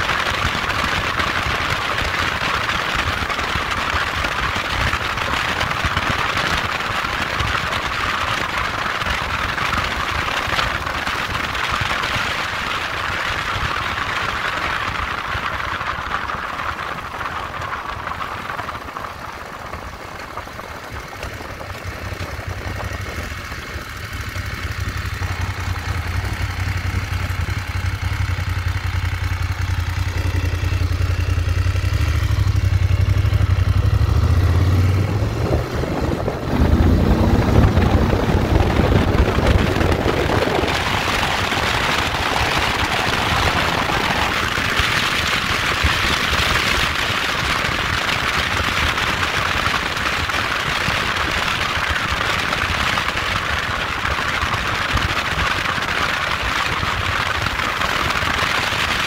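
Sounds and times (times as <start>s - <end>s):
motorcycle engine accelerating: 0.0s - 59.0s
wind rush: 13.2s - 59.0s.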